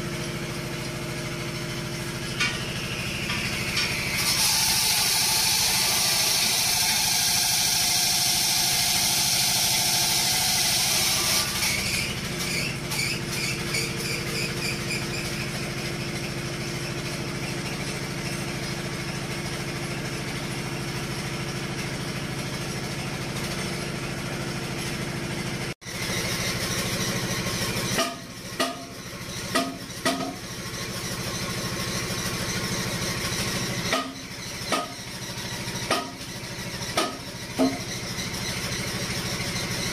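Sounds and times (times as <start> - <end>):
diesel engine idling: 0.0 - 6.0, 10.9 - 39.9
sharp clicks and knocks: 28.0 - 30.4, 36.9 - 37.9.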